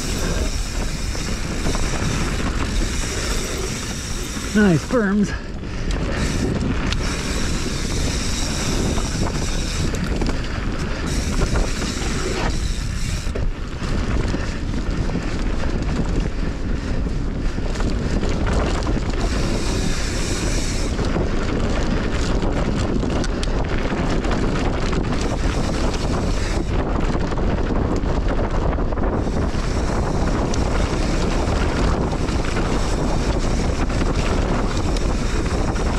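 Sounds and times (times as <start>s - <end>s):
tyres rumbling on dirt: 0.0s - 16.3s
wind buffeting microphone: 0.0s - 35.9s.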